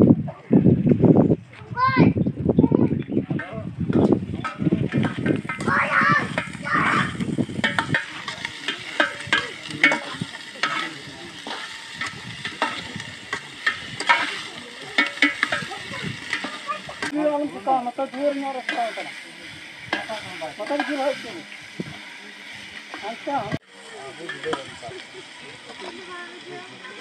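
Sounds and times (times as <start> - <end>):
curry sizzling: 3.3 - 27.0
ladle scraping and knocking pot: 3.9 - 17.2, 18.0 - 23.6.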